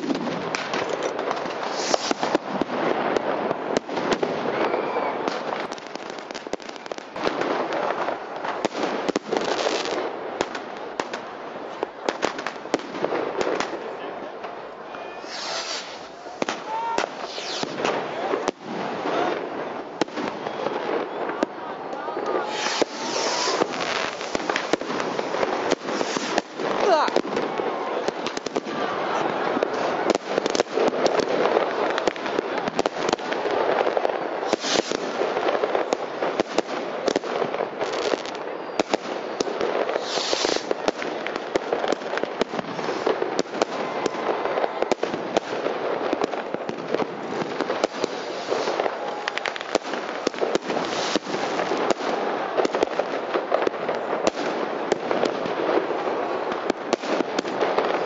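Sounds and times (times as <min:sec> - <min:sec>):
rockets hissing: 0:00.0 - 0:02.6, 0:15.1 - 0:19.6, 0:22.3 - 0:27.6, 0:34.4 - 0:35.4, 0:39.8 - 0:40.8, 0:47.8 - 0:51.8
fireworks crackling and banging: 0:00.0 - 0:58.0.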